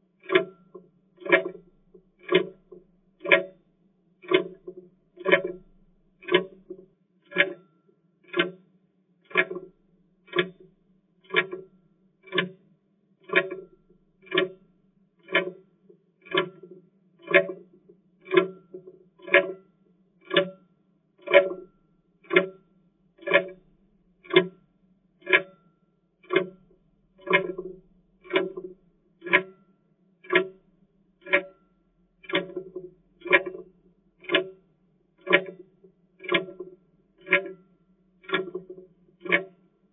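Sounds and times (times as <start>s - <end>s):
clock ticking: 0.2s - 0.6s, 1.2s - 3.6s, 4.2s - 7.6s, 8.2s - 8.6s, 9.3s - 9.7s, 10.3s - 10.6s, 11.2s - 11.6s, 12.2s - 12.6s, 13.3s - 14.6s, 15.2s - 15.6s, 16.2s - 17.6s, 18.2s - 18.6s, 21.2s - 22.5s, 23.2s - 23.6s, 24.2s - 24.6s, 26.2s - 29.6s, 30.2s - 30.6s, 31.2s - 31.6s, 32.2s - 34.6s, 35.2s - 39.6s.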